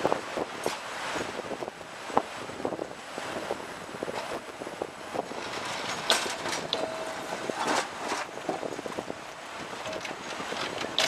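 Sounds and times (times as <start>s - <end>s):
tram wheels on rail: 5.1s - 11.0s.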